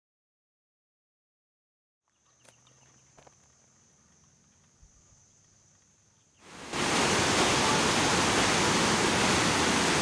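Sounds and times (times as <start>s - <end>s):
high insect drone: 2.1s - 7.8s
stream rushing over rocks: 6.4s - 10.0s.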